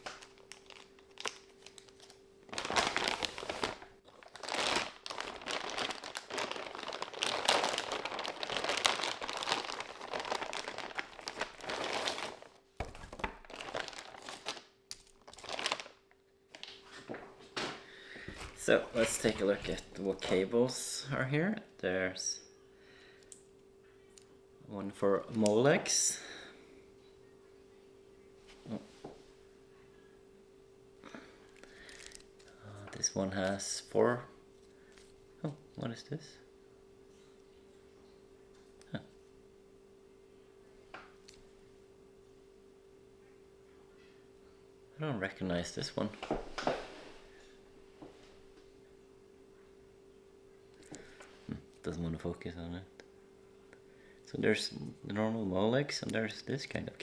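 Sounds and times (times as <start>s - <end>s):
plastic packaging crinkling: 0.0s - 17.2s, 18.3s - 20.5s, 31.5s - 33.6s
faint steady hum: 0.0s - 57.0s.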